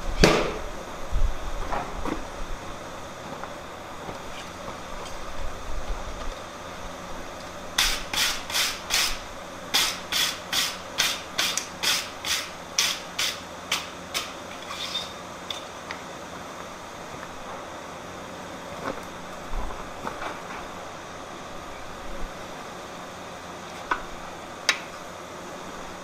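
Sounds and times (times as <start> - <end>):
hand tool scraping steel: 7.8 - 15.6.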